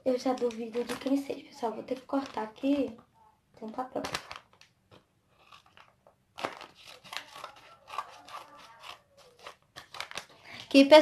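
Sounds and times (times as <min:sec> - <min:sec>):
paper crinkling and crackling: 0:00.0 - 0:11.0
scissors cutting paper envelope: 0:04.0 - 0:10.9.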